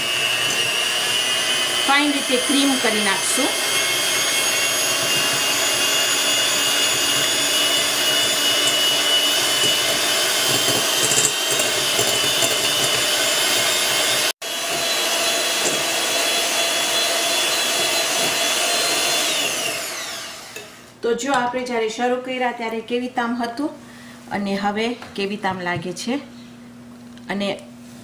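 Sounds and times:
electric hand mixer running: 0.0 - 21.0.

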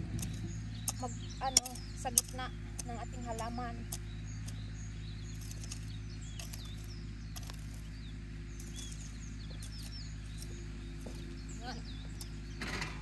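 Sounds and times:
small birds chirping: 0.0 - 13.0
steady low hum: 0.0 - 13.0
hoe chopping into soil: 5.3 - 7.9.

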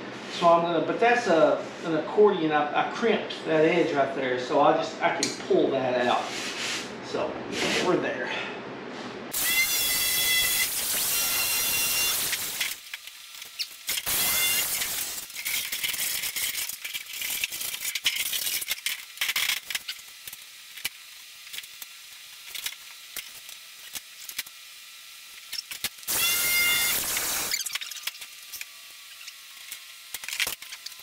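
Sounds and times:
power tool cutting metal: 9.3 - 21.4, 25.2 - 31.0.

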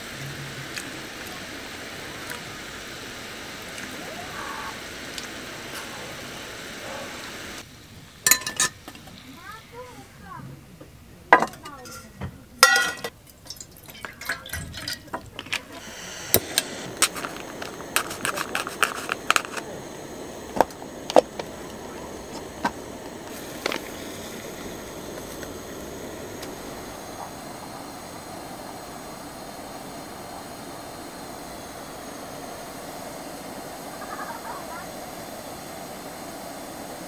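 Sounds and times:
steady gas hiss: 0.0 - 37.0
metal cookware clinking: 8.2 - 9.0, 11.4 - 15.6.

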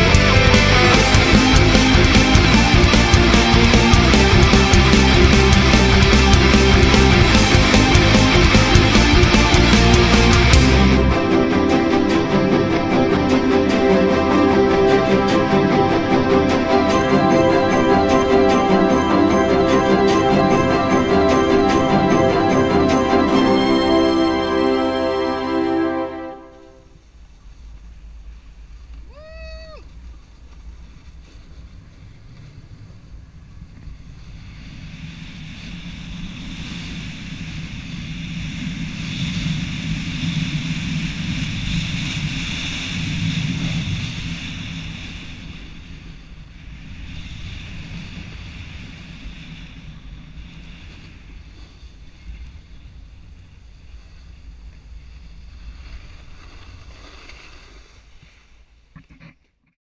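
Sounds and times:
snowboard sliding on snow: 46.9 - 58.9.

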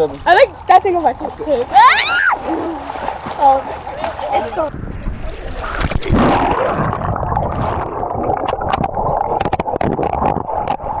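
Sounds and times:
water splashing: 0.0 - 11.0
underwater gurgling: 1.8 - 11.0
bubbles popping: 5.6 - 11.0.

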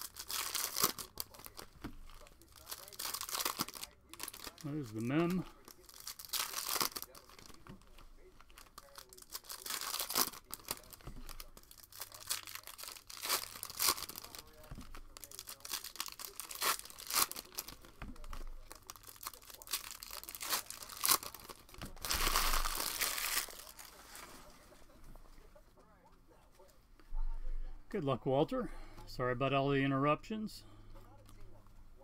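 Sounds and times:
foil wrapper crinkling: 0.0 - 24.6.

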